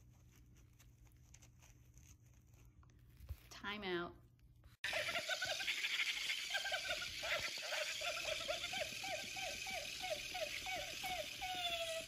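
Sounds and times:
toy motor buzzing: 4.9s - 12.0s.

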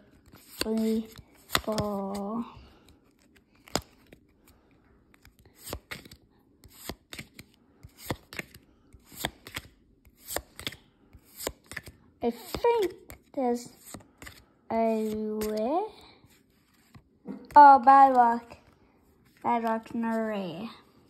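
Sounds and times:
cards flipped with crisp snaps: 0.1s - 2.2s, 2.8s - 4.3s, 5.1s - 14.4s, 15.0s - 15.6s.

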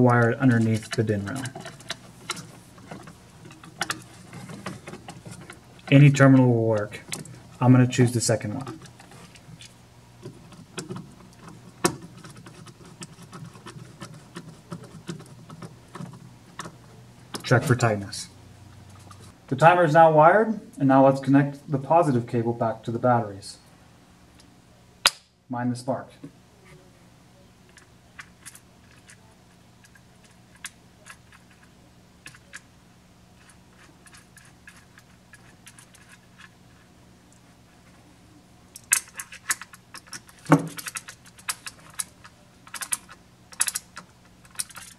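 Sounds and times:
low steady hum: 0.0s - 44.9s
small metal clicks and taps: 38.8s - 44.9s.

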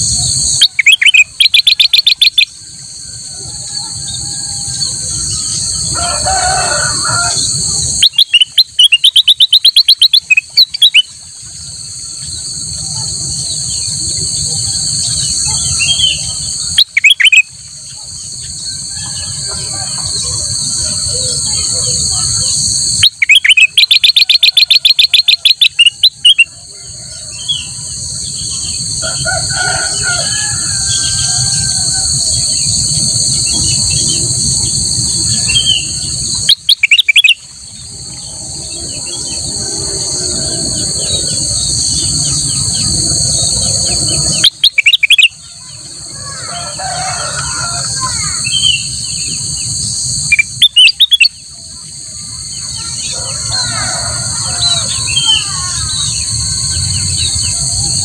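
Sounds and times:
bird chattering song: 0.0s - 2.5s, 7.9s - 11.2s, 14.9s - 26.5s, 35.3s - 37.5s, 40.8s - 45.8s, 48.4s - 51.4s
insects droning: 0.0s - 58.0s.

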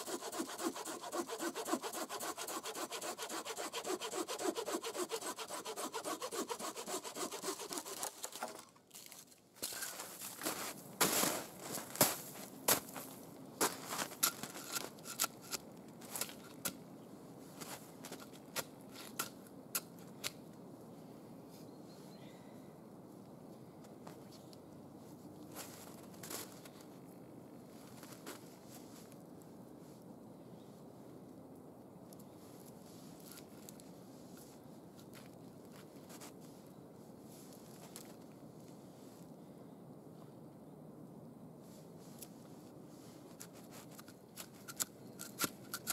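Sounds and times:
crunches of snow and wood: 3.6s - 16.8s, 17.4s - 19.4s, 25.4s - 27.0s, 27.7s - 29.3s, 37.3s - 39.1s, 42.0s - 45.9s.

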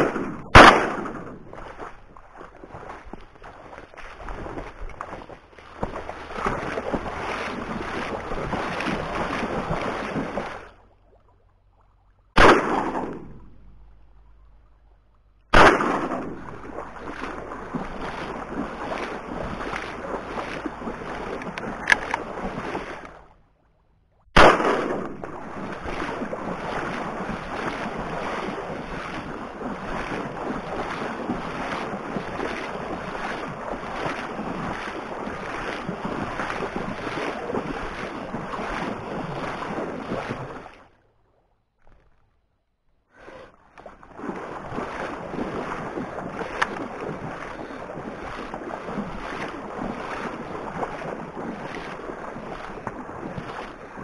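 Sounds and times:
shotgun shot: 0.0s - 1.4s, 12.4s - 13.5s, 15.5s - 16.5s, 24.4s - 25.3s
water sloshing and splashing: 0.0s - 42.5s, 43.1s - 54.0s.

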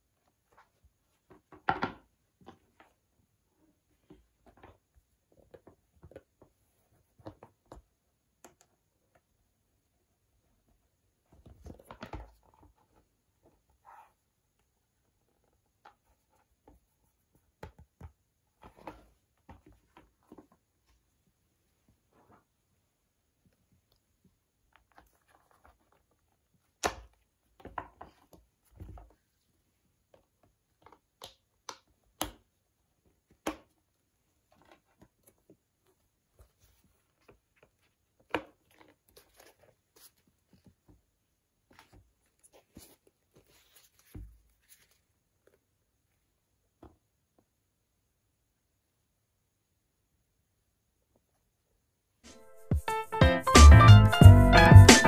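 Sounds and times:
soft rustles: 41.7s - 45.7s.

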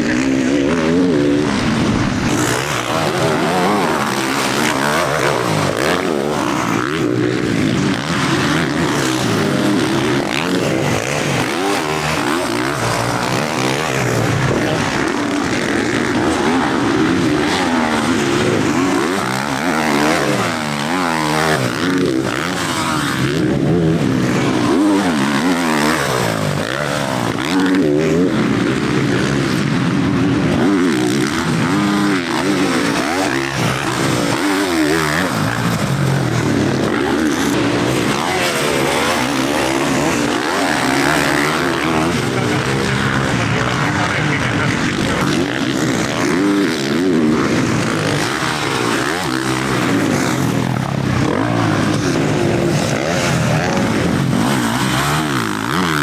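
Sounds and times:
motocross bike engines revving: 0.0s - 56.0s.

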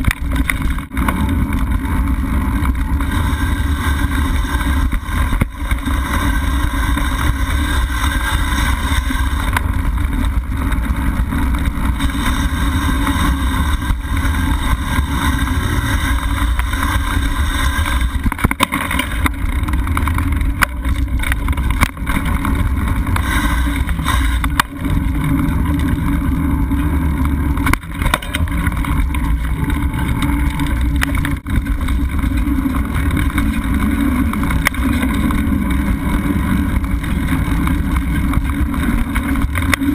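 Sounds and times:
sharp knocks from trail bumps: 0.0s - 26.0s, 27.3s - 39.9s
bike tyres and frame rattling: 0.0s - 39.9s.

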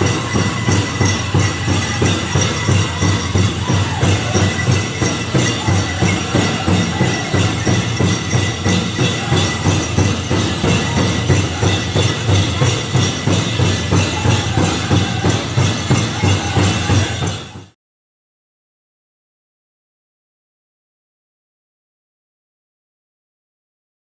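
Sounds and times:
group singing: 0.0s - 17.4s
large hand drum beating: 0.0s - 17.5s
bells jingling: 0.0s - 17.8s.

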